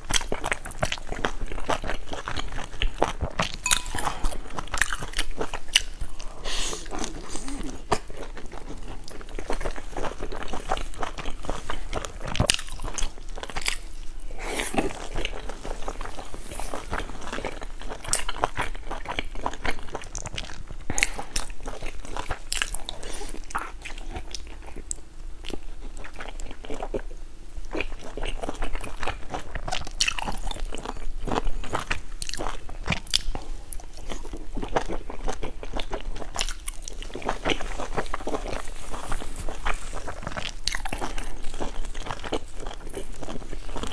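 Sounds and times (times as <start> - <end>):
biting and chewing: 27.7 - 43.9.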